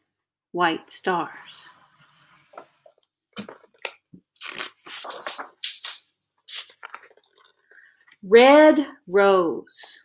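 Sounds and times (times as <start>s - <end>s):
book pages rustling: 2.5s - 8.1s.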